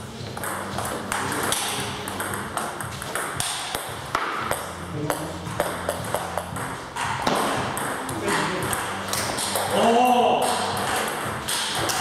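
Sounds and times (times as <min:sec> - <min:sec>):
table tennis ball clicking: 0:10.4 - 0:12.0.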